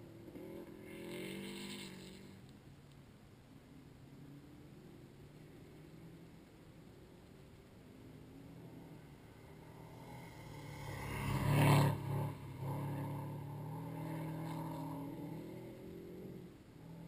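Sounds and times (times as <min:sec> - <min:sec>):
car engine driving past: 0:00.0 - 0:02.5, 0:08.0 - 0:17.0
tyre and dirt noise: 0:00.0 - 0:17.0.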